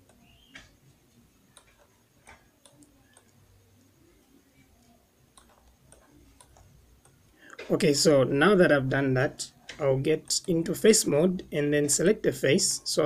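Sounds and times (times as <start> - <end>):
faint computer mouse clicks: 1.5 - 3.4.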